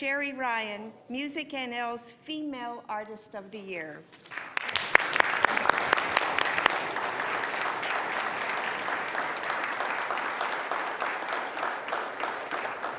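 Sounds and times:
crowd applauding: 4.3s - 12.9s.

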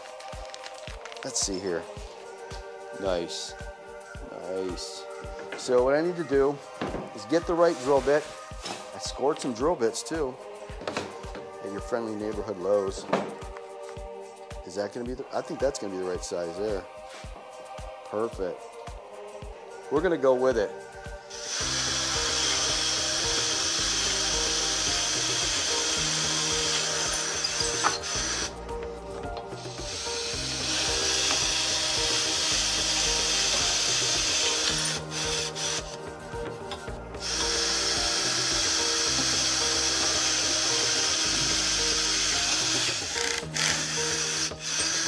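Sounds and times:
background music: 0.0s - 45.0s
cordless drill boring wood: 21.3s - 28.6s, 29.6s - 36.0s, 37.2s - 45.0s.

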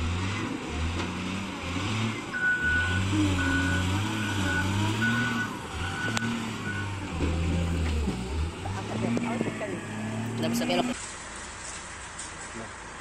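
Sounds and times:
wheel loader diesel engine: 0.0s - 13.0s
reversing alarm beeps: 2.4s - 7.0s.

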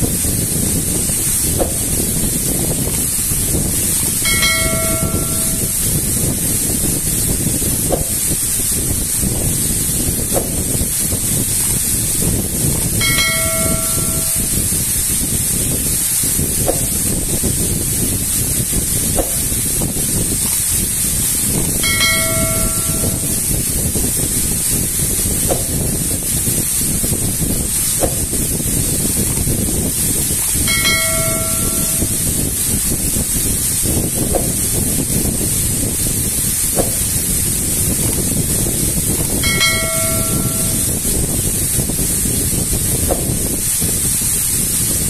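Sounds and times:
waterfall splashing onto rocks: 0.0s - 45.0s
short bell-like chime: 4.2s - 5.8s, 13.0s - 14.6s, 21.8s - 23.4s, 30.7s - 32.2s, 39.4s - 41.0s.

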